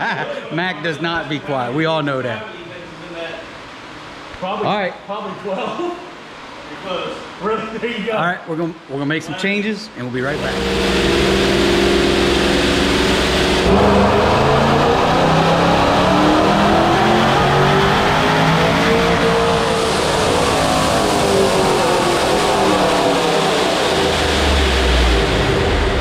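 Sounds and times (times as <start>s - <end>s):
supercharged engine revving: 10.2s - 26.0s.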